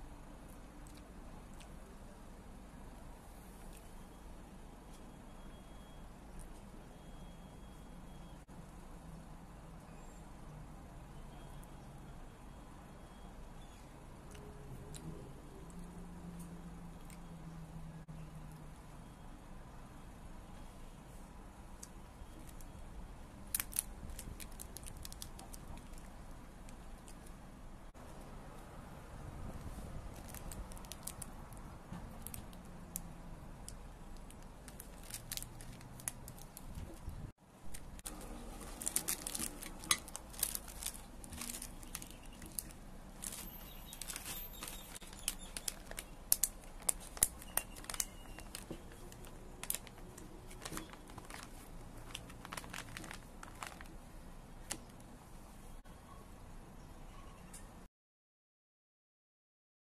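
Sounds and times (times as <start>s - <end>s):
plastic wrappers crinkling: 23.5s - 27.3s, 30.0s - 33.0s, 34.2s - 37.0s, 37.7s - 55.0s.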